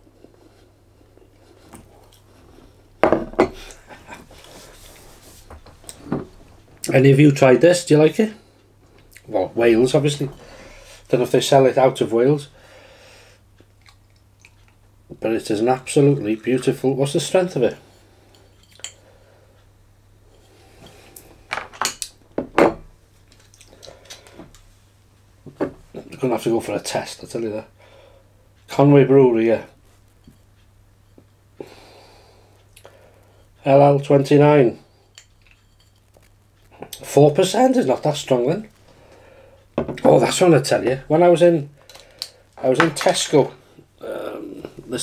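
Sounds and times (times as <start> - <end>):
glass bottle knocks and clinks: 3.0 - 3.6.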